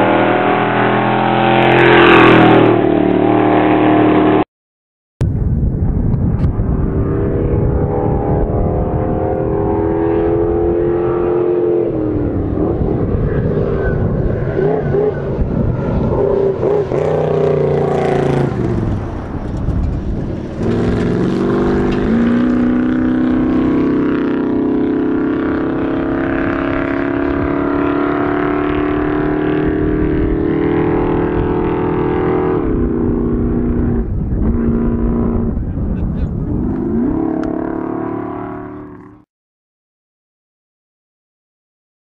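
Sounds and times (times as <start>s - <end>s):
race truck engine accelerating: 6.4s - 39.2s.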